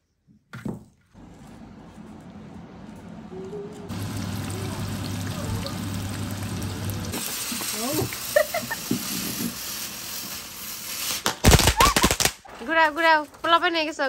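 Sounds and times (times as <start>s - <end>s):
food sizzling in hot oil: 3.9s - 11.3s
firework spraying sparks hiss: 7.1s - 12.4s.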